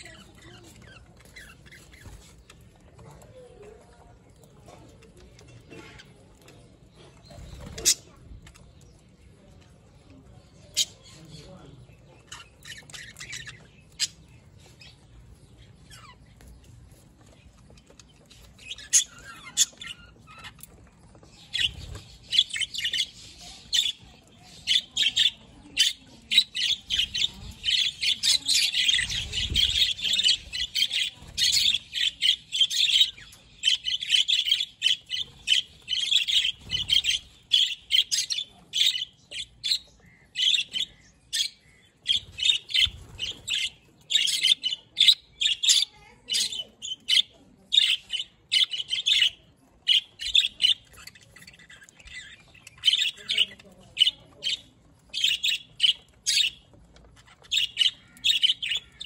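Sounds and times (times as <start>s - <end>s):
budgerigars chirping: 17.9s - 59.0s.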